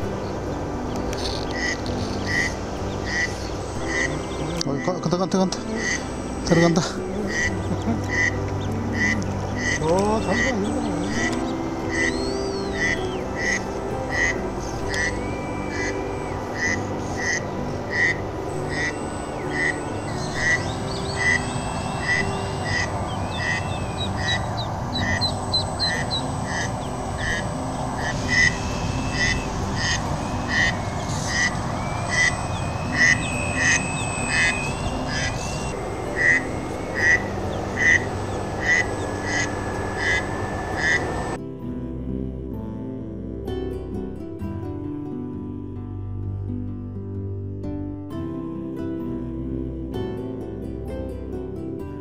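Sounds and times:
ducklings peeping: 0.9s - 41.4s.

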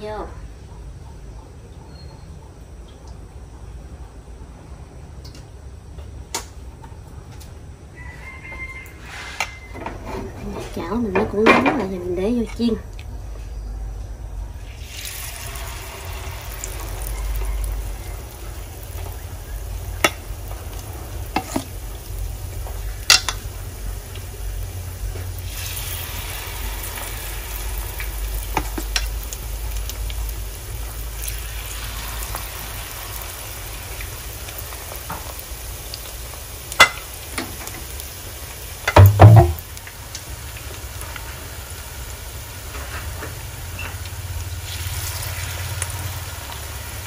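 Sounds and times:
batter sizzling in hot oil: 14.6s - 47.0s
metal ladle clicking on pan: 23.1s - 23.4s
ladle knock: 38.9s - 39.6s.

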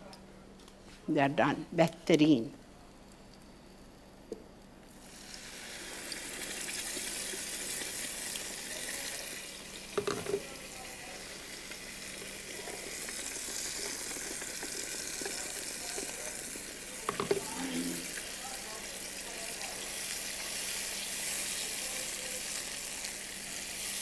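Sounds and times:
paste sizzling in oil: 5.0s - 24.0s
utensil knocking on pan: 10.0s - 10.4s, 17.1s - 17.5s.

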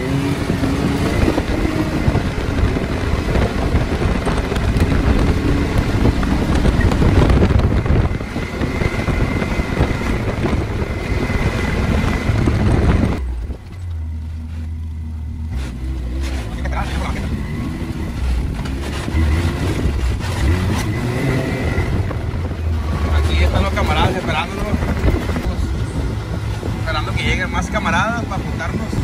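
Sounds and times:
wind noise on microphone: 0.0s - 14.7s, 15.4s - 29.0s
vehicle engine running: 0.0s - 29.0s.

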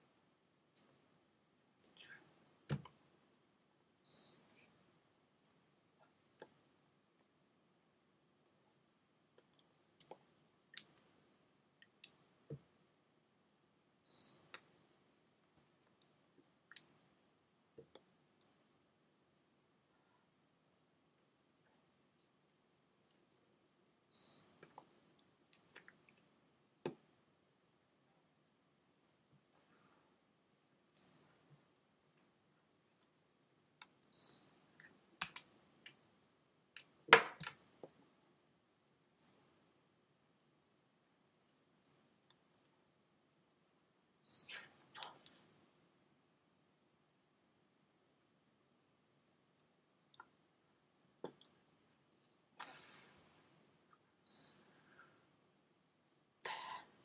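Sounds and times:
faint sharp clicks and taps: 17.7s - 18.6s.

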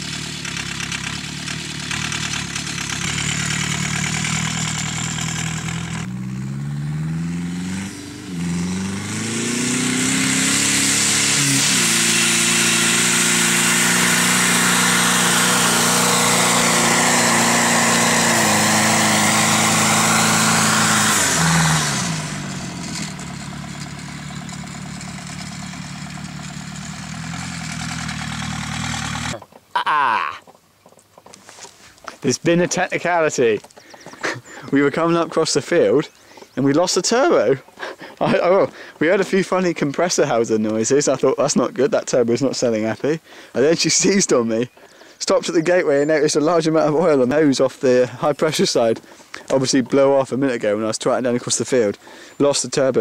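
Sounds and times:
diesel van engine revving: 0.0s - 29.4s.

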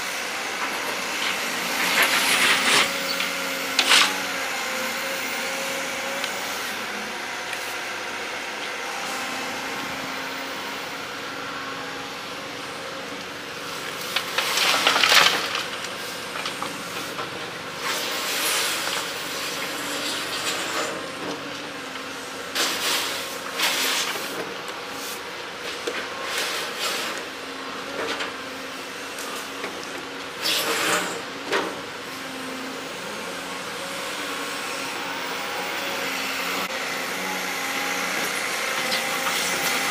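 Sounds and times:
diesel engine running: 0.2s - 23.5s.

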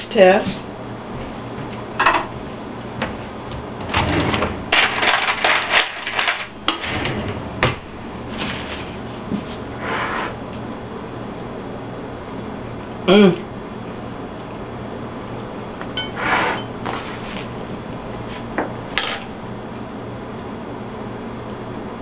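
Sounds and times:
cutlery clattering in drawer: 4.0s - 7.1s.

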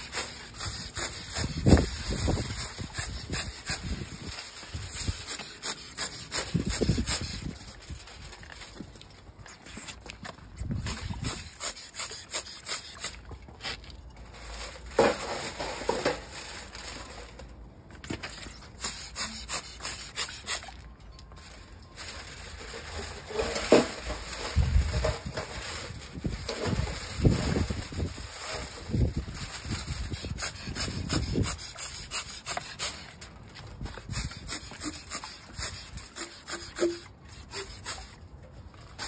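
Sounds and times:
brush scrubbing pots: 0.0s - 8.0s, 10.8s - 13.9s, 18.3s - 20.8s, 22.6s - 38.2s
aluminium foil crinkling: 0.0s - 39.0s
wind rumble on microphone: 1.3s - 5.2s, 10.5s - 11.5s, 24.4s - 31.6s.

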